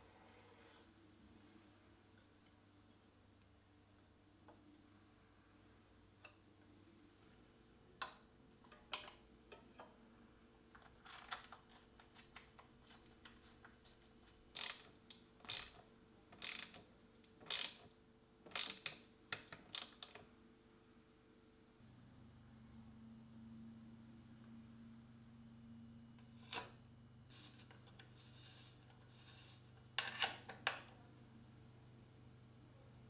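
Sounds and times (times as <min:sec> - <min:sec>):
ratchet driver clicking: 0:14.6 - 0:14.9, 0:15.5 - 0:15.8, 0:16.4 - 0:16.8, 0:17.4 - 0:17.8, 0:18.5 - 0:18.9.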